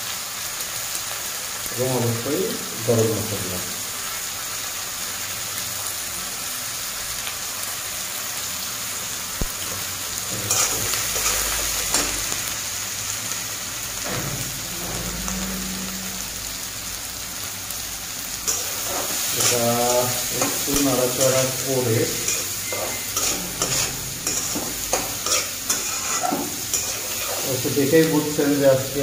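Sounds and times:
vegetables sizzling in oil: 0:00.0 - 0:29.0
metal spatula scraping pan: 0:10.4 - 0:12.3, 0:18.4 - 0:27.8.

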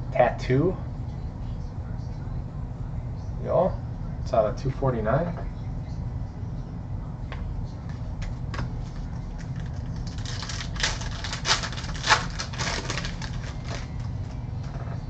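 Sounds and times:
trading cards clicking and rustling: 0:08.2 - 0:14.8.

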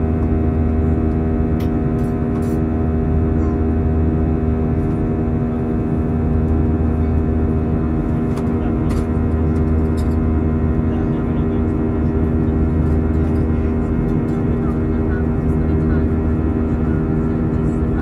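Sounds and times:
aircraft engine drone in cabin: 0:00.0 - 0:18.0.

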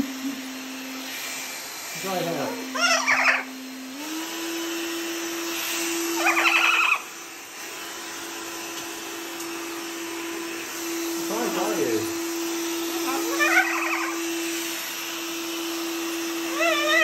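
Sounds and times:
hairdryer blowing: 0:00.0 - 0:17.0
macaw calling: 0:02.7 - 0:03.5, 0:06.2 - 0:07.1, 0:13.3 - 0:14.2.

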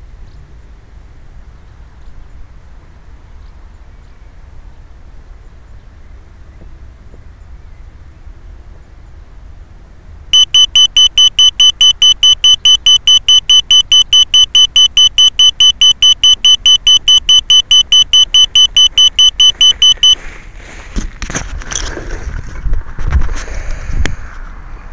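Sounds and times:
fast electronic beeps: 0:10.4 - 0:20.2
rustling: 0:19.4 - 0:24.4.

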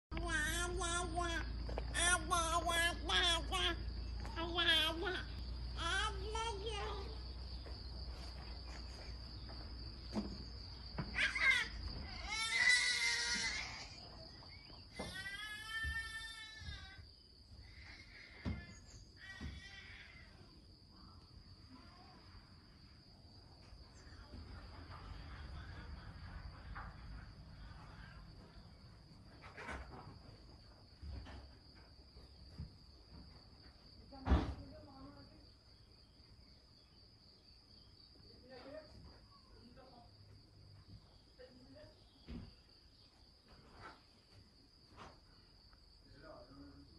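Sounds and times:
high wordless voice calling: 0:00.1 - 0:06.8
crickets chirring: 0:00.1 - 0:46.9.

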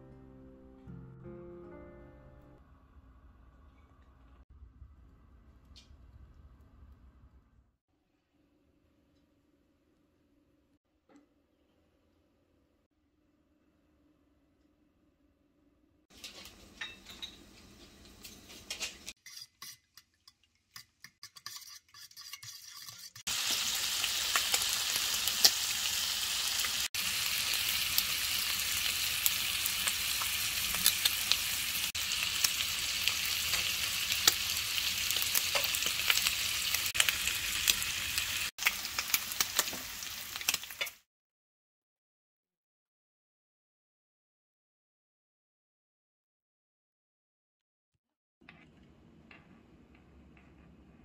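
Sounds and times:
bacon sizzling in a frying pan: 0:23.3 - 0:41.0.

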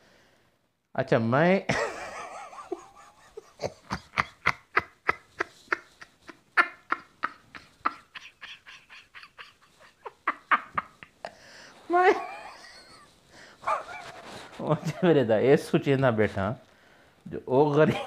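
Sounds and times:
man laughing hard: 0:01.7 - 0:11.3, 0:11.9 - 0:13.1.

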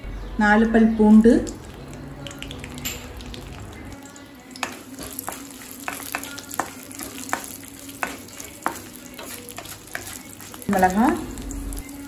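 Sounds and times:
spices sizzling in hot oil: 0:01.1 - 0:12.0
wooden spatula scraping a pan: 0:04.6 - 0:11.1.

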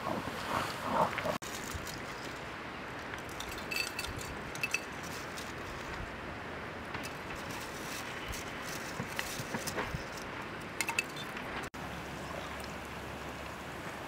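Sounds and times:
glass clinks: 0:03.4 - 0:04.9.

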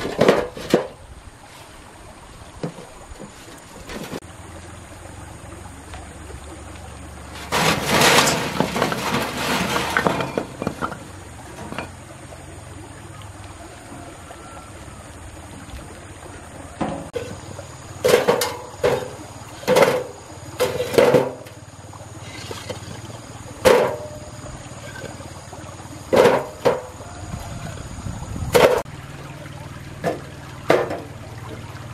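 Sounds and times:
bricks clattering into metal wheelbarrow: 0:00.0 - 0:01.0, 0:03.8 - 0:04.2, 0:07.3 - 0:12.0, 0:18.0 - 0:21.6, 0:22.2 - 0:25.2, 0:26.1 - 0:27.0, 0:28.5 - 0:28.8, 0:30.1 - 0:31.1.

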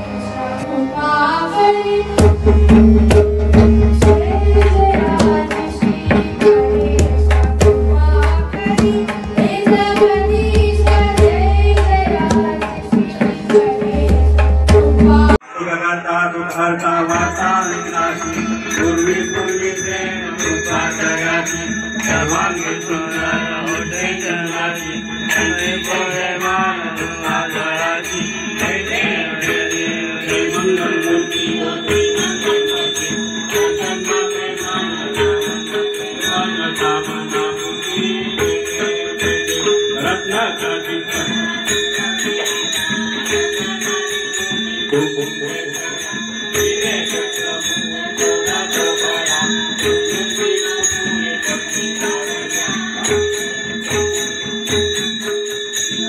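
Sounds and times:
harmonium: 0:00.0 - 0:15.4
group singing: 0:00.0 - 0:56.0
woman singing: 0:00.3 - 0:02.5, 0:04.0 - 0:15.4, 0:19.2 - 0:44.9, 0:45.5 - 0:54.8
hand drum beating: 0:02.2 - 0:15.4, 0:20.5 - 0:56.0
steady high ringing: 0:16.3 - 0:56.0.

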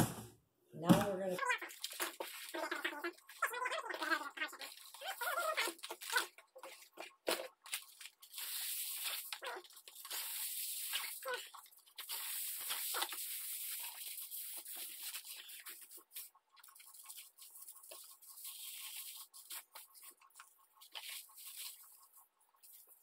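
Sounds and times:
aluminum foil crinkling: 0:01.4 - 0:23.0.

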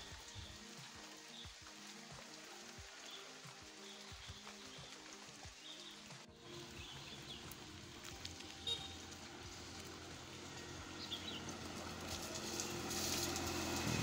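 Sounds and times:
rain hiss: 0:00.0 - 0:14.0
motorcycle engine approaching: 0:06.6 - 0:14.0
bird chirps: 0:08.4 - 0:09.1.

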